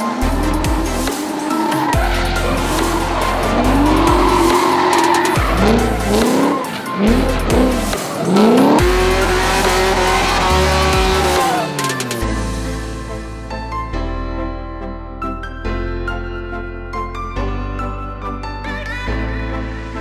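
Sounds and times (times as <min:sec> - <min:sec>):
car engines revving hard: 0:00.0 - 0:12.2
tyres squealing: 0:00.0 - 0:12.2
background music with bass: 0:00.0 - 0:20.0.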